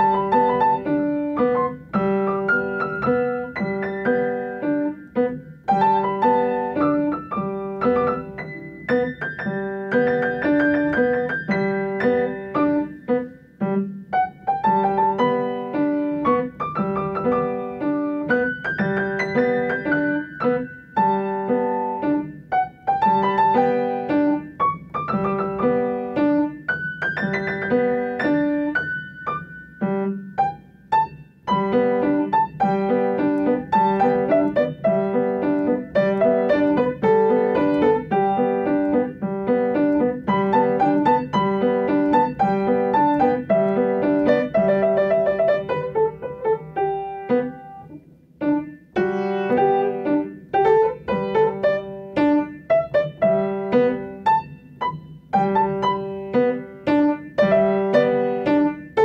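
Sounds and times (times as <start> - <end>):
upright piano playing: 0.0 - 59.0.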